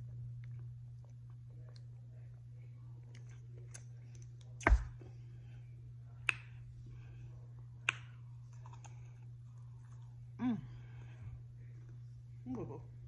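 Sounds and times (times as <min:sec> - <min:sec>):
steady low hum: 0:00.0 - 0:13.0
mouth clicks while eating: 0:07.8 - 0:09.0.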